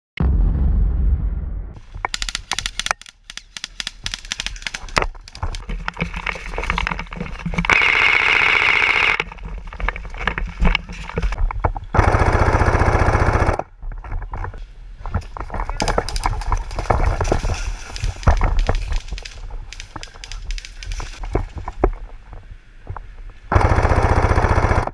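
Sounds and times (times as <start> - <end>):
airsoft rifles firing: 2.1 - 5.4.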